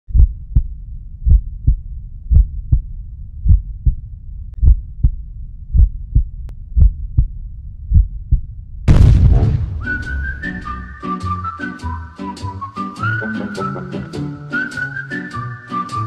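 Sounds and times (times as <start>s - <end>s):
heartbeat thuds: 0.1s - 11.0s
low steady hum: 0.1s - 11.0s.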